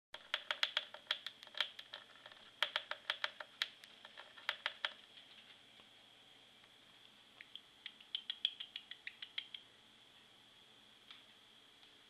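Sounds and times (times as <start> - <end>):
bird pecking keyboard keys: 0.2 - 5.0.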